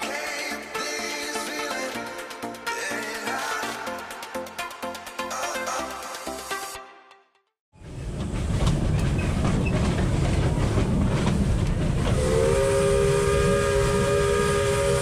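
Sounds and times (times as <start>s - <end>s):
train wheels clattering on rails: 7.8s - 12.6s
steam whistle blowing: 12.1s - 15.0s.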